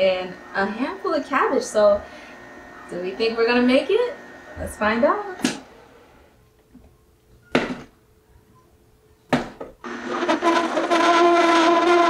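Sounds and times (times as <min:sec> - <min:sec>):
juicer whining hum: 0:00.0 - 0:05.6, 0:09.8 - 0:12.0.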